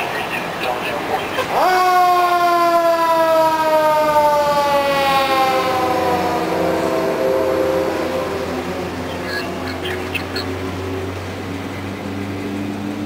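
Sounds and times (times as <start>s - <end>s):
mechanical siren winding down: 1.6s - 9.2s.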